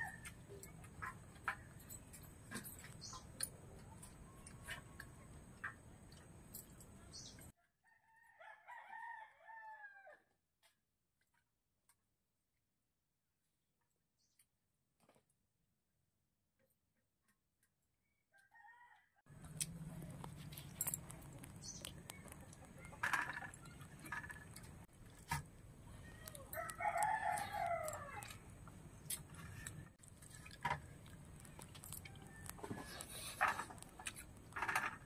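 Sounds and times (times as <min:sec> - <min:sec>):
rooster crowing: 0:07.8 - 0:10.2, 0:26.5 - 0:28.4.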